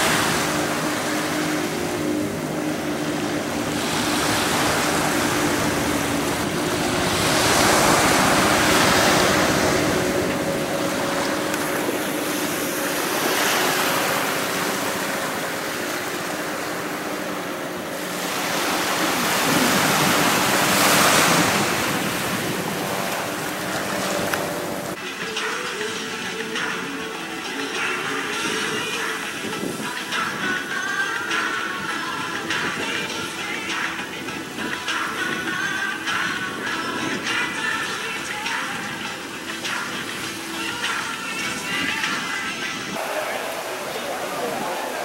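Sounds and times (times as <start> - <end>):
wind buffeting microphone: 0.0 - 25.0, 28.5 - 30.7
small waves breaking on sand: 0.0 - 25.6, 34.7 - 45.0.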